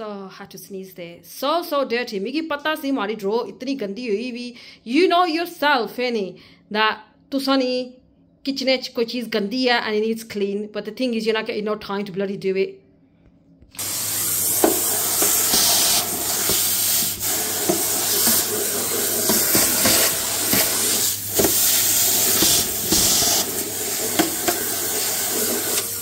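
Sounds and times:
vacuum cleaner running: 13.7s - 26.0s.

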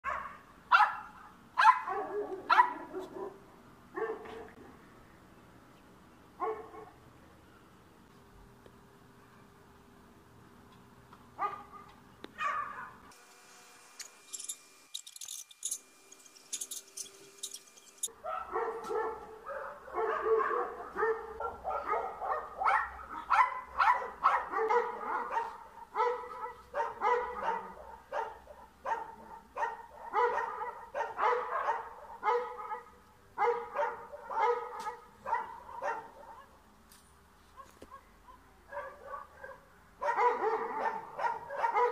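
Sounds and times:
small dog barking: 0.0s - 3.4s, 4.0s - 4.6s, 6.4s - 7.0s, 11.4s - 13.0s, 17.5s - 36.6s, 37.6s - 41.9s.

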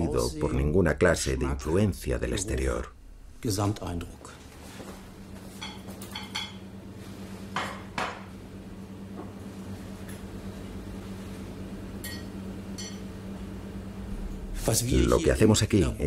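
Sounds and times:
low hum: 0.0s - 7.4s, 8.2s - 16.0s
dishes and cutlery clinking: 5.5s - 6.7s, 12.0s - 13.1s.

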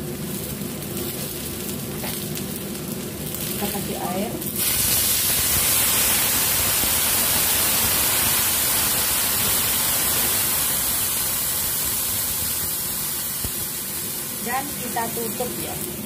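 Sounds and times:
water sizzling in hot wok: 0.0s - 16.0s.

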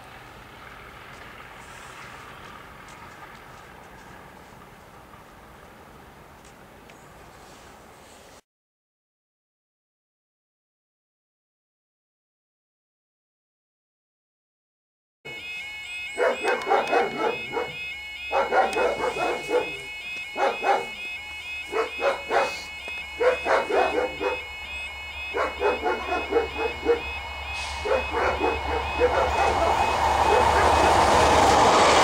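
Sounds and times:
approaching train rumble: 0.0s - 8.2s, 25.0s - 32.0s
level crossing alarm warbling: 15.3s - 32.0s
dog barking: 16.2s - 24.6s, 25.2s - 27.2s, 27.8s - 31.2s.

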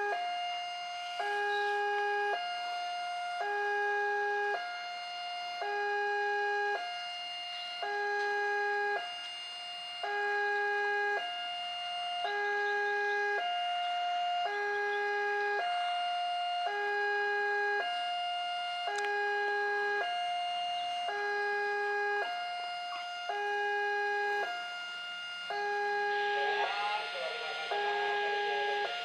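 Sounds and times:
level crossing two-tone alarm: 0.0s - 29.0s.

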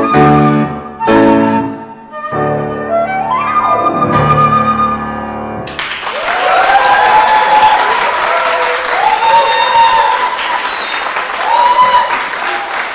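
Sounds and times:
flute and clarinet ensemble: 0.0s - 5.4s
audience applause: 5.7s - 12.9s.

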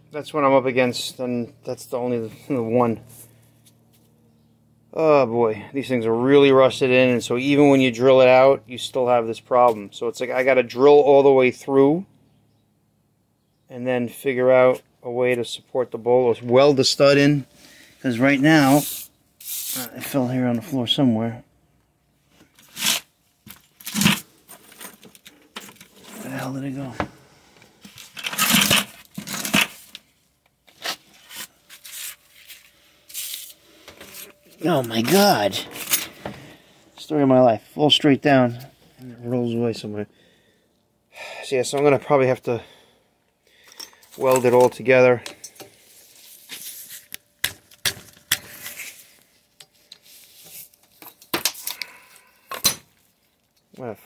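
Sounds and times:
gloved hands rustling debris: 27.9s - 36.1s
metal tools clinking: 33.1s - 36.2s, 43.6s - 45.8s.

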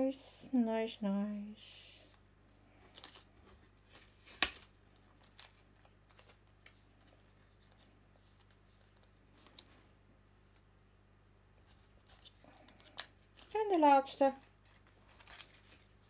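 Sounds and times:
paper rustling: 2.6s - 9.9s, 11.6s - 16.0s.

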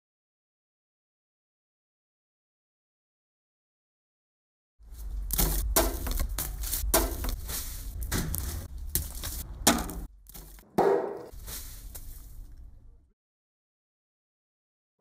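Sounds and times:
low steady rumble: 4.8s - 10.6s
sharp knocks and crunches: 4.9s - 12.7s.

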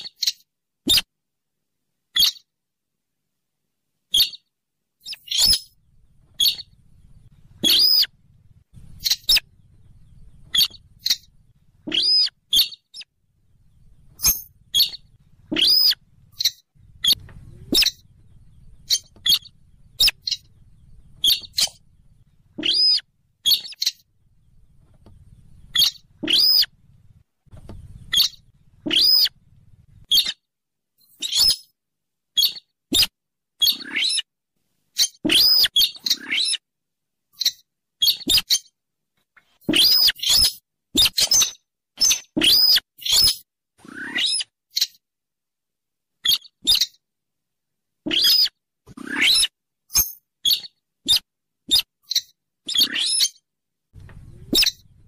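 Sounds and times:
rail bird calls: 5.0s - 30.4s, 35.0s - 36.6s, 39.7s - 43.4s, 54.0s - 55.0s
faint low rumble: 5.7s - 30.1s, 54.0s - 55.0s.

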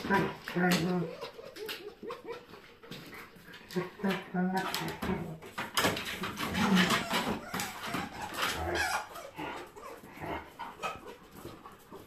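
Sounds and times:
dogs calling during play: 6.3s - 11.8s.

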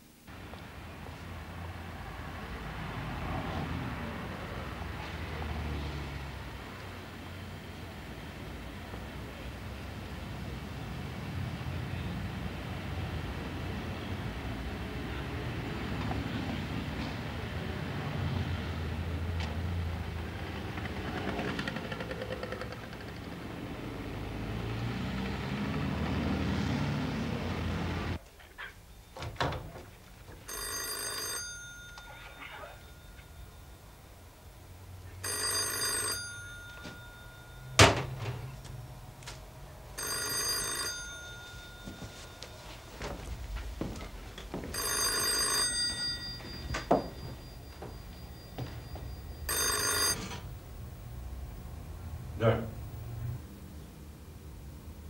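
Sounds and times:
rumble of passing traffic: 0.1s - 55.0s
telephone bell ringing: 30.4s - 34.1s, 35.2s - 38.6s, 40.0s - 43.3s, 44.7s - 50.6s.

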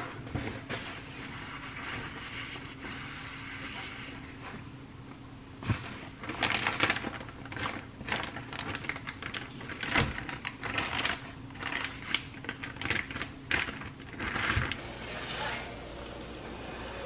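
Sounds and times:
plastic bag crinkling: 6.0s - 15.0s.

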